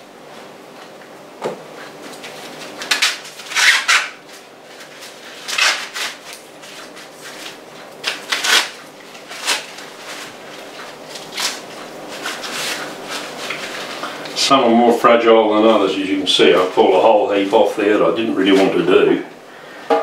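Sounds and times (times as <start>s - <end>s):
corn husks rustling and tearing: 1.9s - 14.4s.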